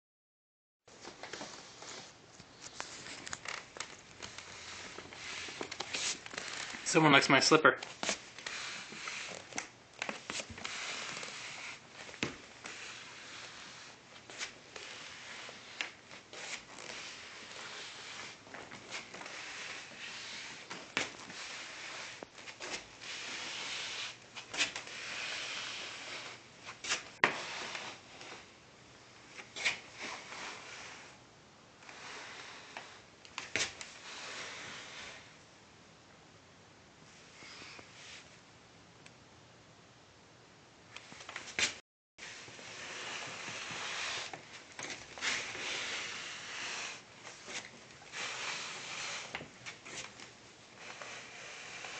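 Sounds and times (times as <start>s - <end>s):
slipper scuffing on hardwood floor: 7.9s - 28.5s, 41.2s - 51.9s.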